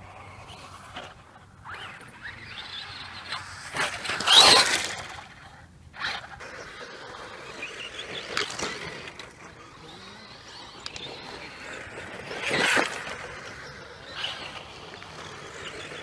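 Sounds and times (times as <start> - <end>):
electric motor whine: 6.0 - 16.0.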